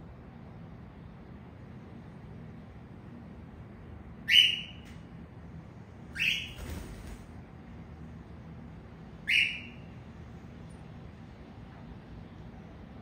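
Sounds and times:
cockatiel contact calls: 0:06.2 - 0:06.6.

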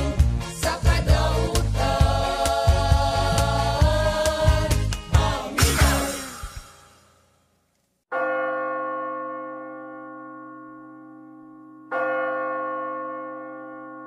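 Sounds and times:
church bell ringing: 0:08.1 - 0:14.0.

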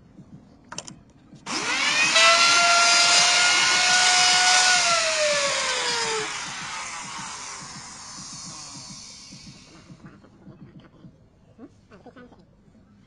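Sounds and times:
electric router motor whining: 0:01.5 - 0:10.0.

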